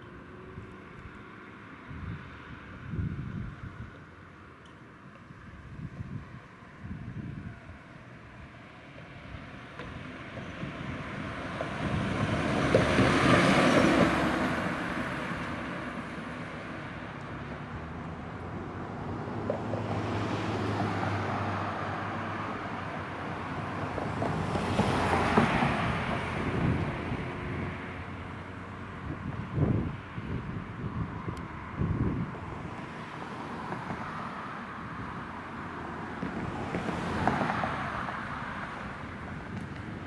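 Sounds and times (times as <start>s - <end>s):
vehicle passing: 8.8s - 40.0s
fire engine passing: 9.2s - 40.0s.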